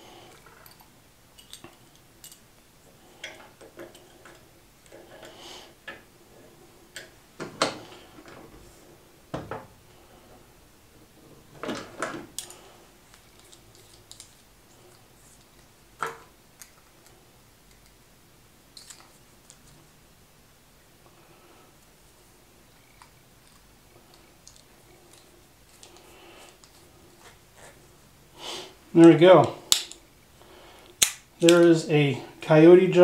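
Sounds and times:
small metal parts clinking: 0.4 - 2.5.

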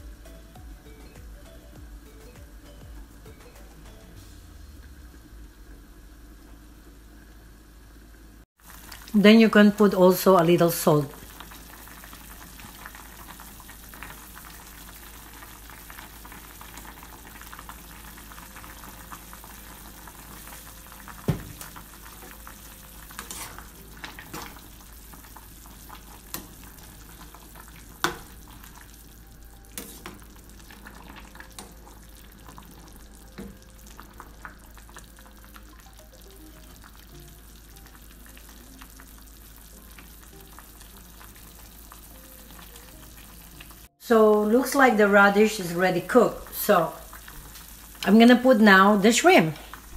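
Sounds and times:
broth simmering hiss: 0.0 - 49.9.

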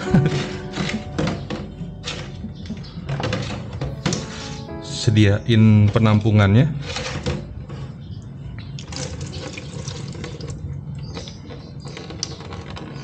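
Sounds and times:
liquid pouring into container: 8.8 - 10.8.

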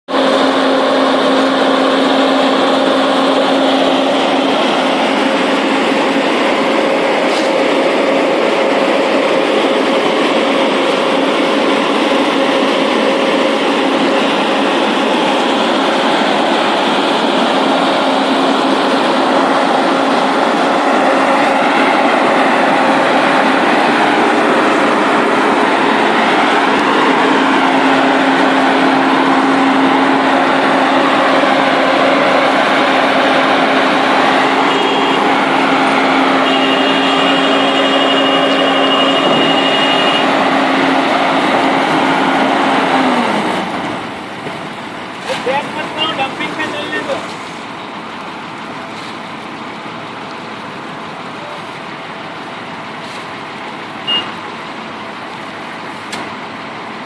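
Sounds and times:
paving machine engine hum: 0.1 - 57.0.

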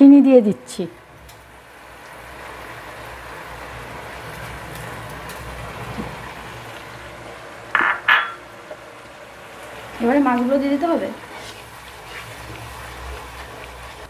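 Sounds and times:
paste sizzling in a pan: 1.0 - 7.8, 8.4 - 14.0
loud scrapes in a pan: 11.2 - 12.6.

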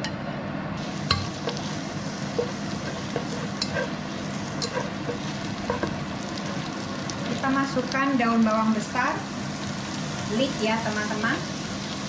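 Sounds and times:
onion sizzling in oil: 0.8 - 12.0.

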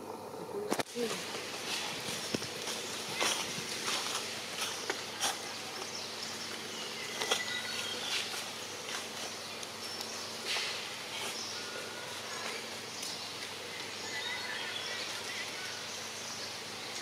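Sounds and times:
insects buzzing: 0.0 - 17.0
rustling: 0.7 - 13.9.

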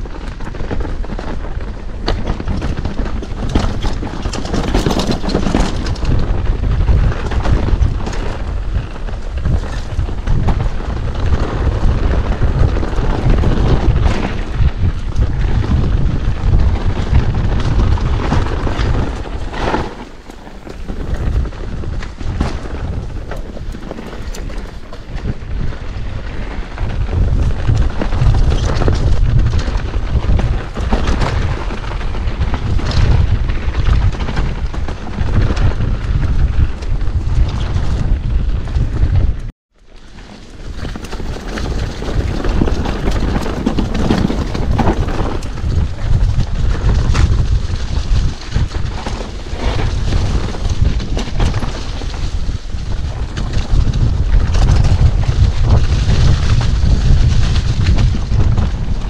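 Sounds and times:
wind buffeting microphone: 0.0 - 59.0
bike clattering over rocks: 2.0 - 8.8, 11.2 - 26.4, 40.3 - 47.6.

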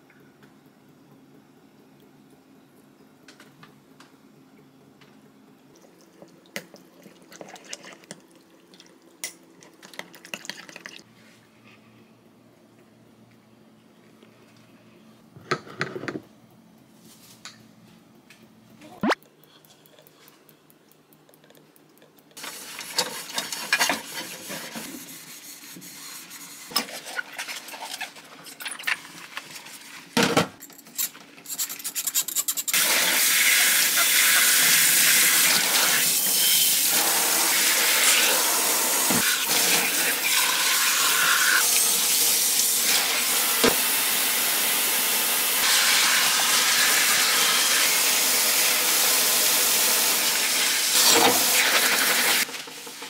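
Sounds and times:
tap water running over dishes: 5.7 - 11.1, 32.8 - 53.0.

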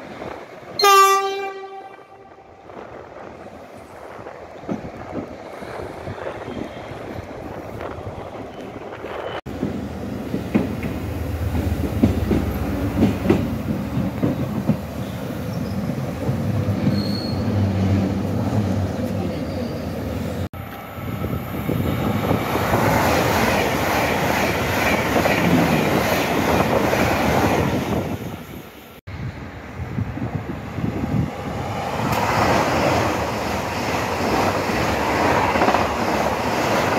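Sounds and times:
wheels squealing on rails: 14.3 - 20.1.

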